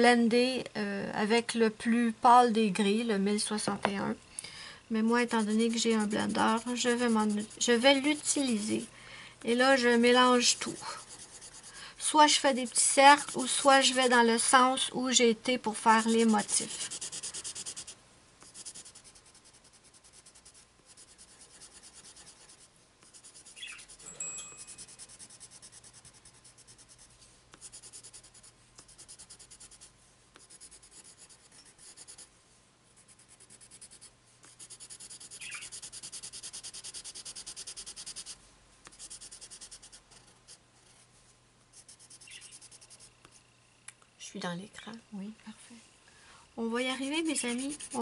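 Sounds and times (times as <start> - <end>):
pencil scratching on paper: 5.0 - 8.9, 9.5 - 14.7, 15.7 - 32.3, 33.0 - 41.0, 41.7 - 43.4, 47.0 - 48.0.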